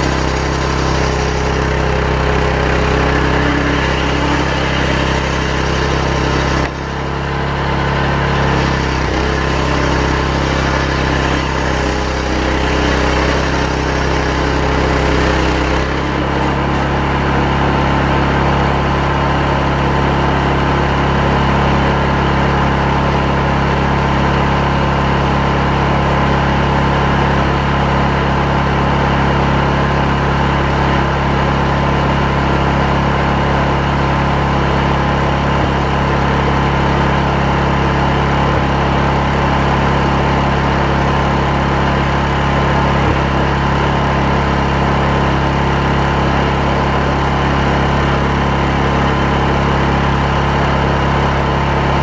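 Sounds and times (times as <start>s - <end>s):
chainsaw cutting a log: 0.0s - 19.4s, 30.3s - 52.0s.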